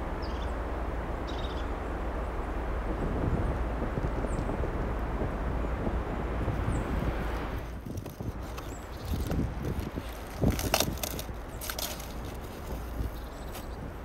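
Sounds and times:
low wind rumble: 0.0s - 14.0s
cabbage stem cracking: 7.6s - 13.8s.

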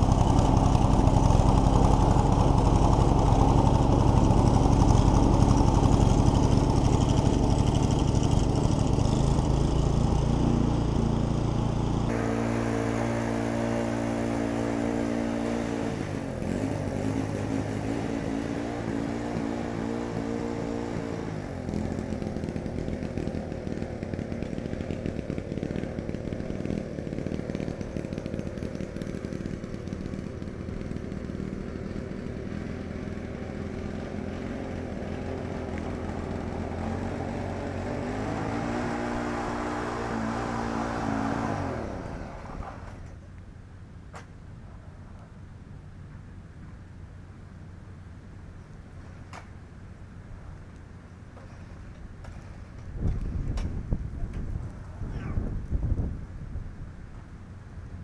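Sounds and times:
snowblower engine running: 0.0s - 43.2s.

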